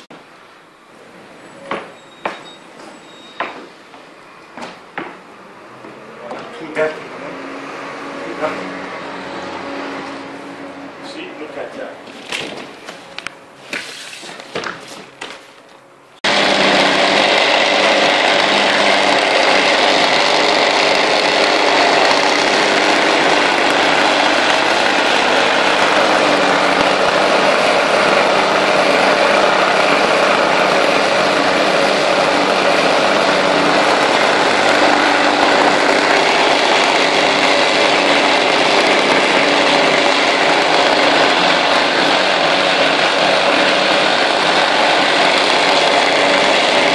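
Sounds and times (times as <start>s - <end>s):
rug-beating machine running: 16.2s - 46.9s.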